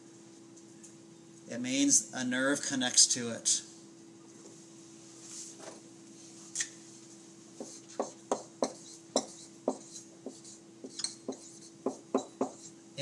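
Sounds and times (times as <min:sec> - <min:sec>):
low room hum: 0:00.0 - 0:13.0
taps and clicks of writing on board: 0:07.6 - 0:12.7.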